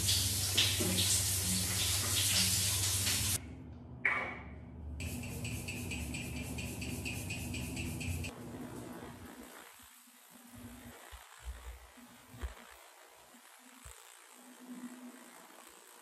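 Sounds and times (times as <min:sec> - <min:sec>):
water running: 0:00.0 - 0:03.4.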